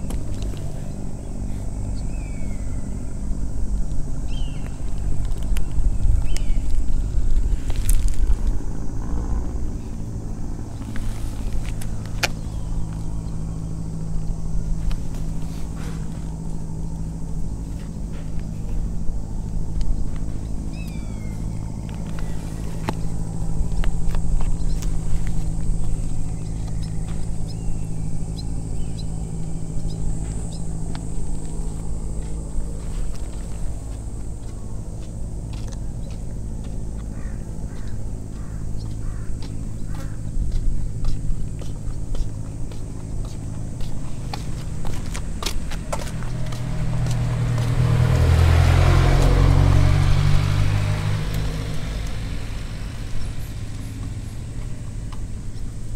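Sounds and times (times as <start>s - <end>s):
low engine hum: 0.0s - 55.9s
crow cawing: 37.1s - 40.3s.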